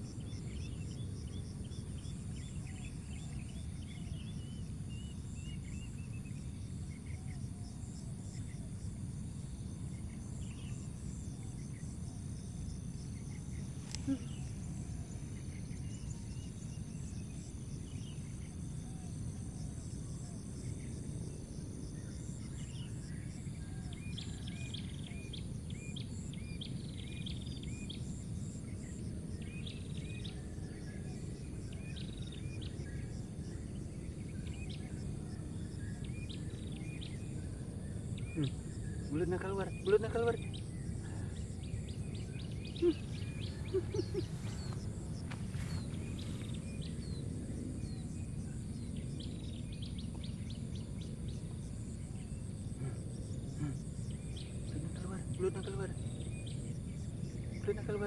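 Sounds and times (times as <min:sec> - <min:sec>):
crickets trilling: 0:00.0 - 0:58.0
bird chirping: 0:22.0 - 0:58.0.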